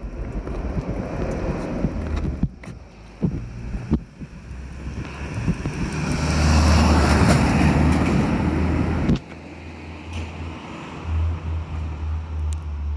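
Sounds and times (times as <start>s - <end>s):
low rumble: 0.0s - 6.2s
car passing close by: 3.4s - 12.4s.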